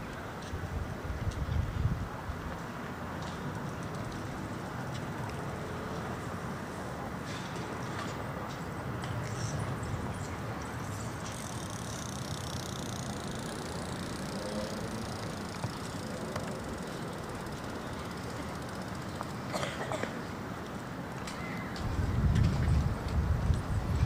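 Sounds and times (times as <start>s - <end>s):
distant traffic rumble: 0.0s - 24.0s
faint clicks: 10.6s - 19.4s.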